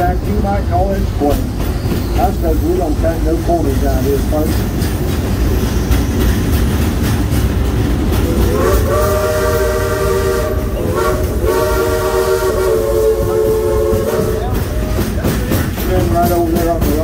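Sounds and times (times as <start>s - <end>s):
train cars rumbling and rattling: 0.0s - 17.0s
steam locomotive chime whistle: 8.3s - 14.9s.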